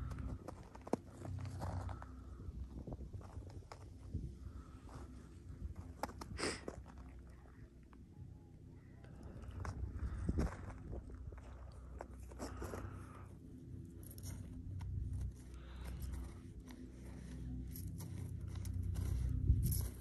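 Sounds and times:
wind buffeting microphone: 1.6 - 6.4, 9.4 - 11.7
light crunches and scrapes: 9.0 - 20.0.

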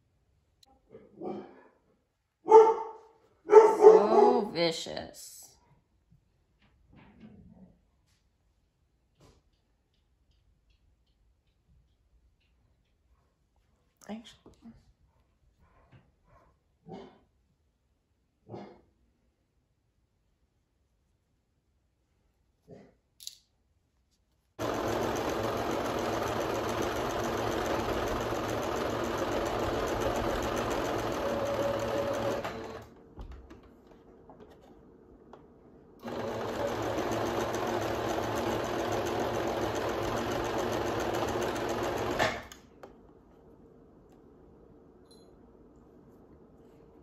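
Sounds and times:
sewing machine stitching fabric: 24.6 - 33.6, 36.0 - 42.7.

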